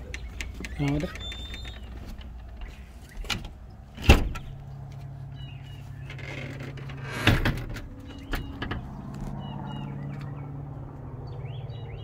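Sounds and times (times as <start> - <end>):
bird chirps: 0.0 - 2.0, 5.3 - 6.2, 8.0 - 8.6, 9.3 - 10.6, 11.2 - 12.0
storm door banging shut: 4.0 - 4.4, 7.0 - 8.8.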